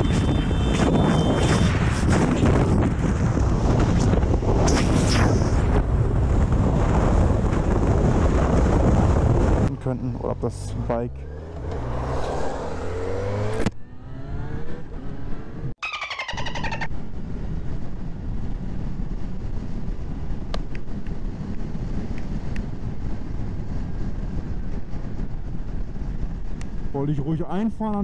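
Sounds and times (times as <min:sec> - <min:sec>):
wind and road noise: 0:00.0 - 0:28.0
motorcycle engine revving: 0:10.9 - 0:15.7.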